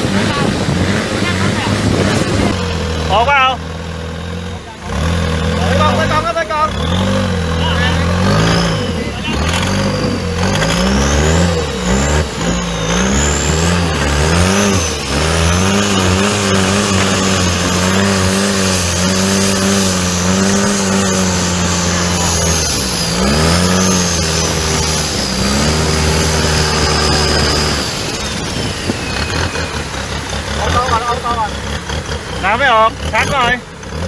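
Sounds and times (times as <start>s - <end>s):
boat engine running hard: 0.0s - 34.0s
faint high whine: 11.5s - 31.6s.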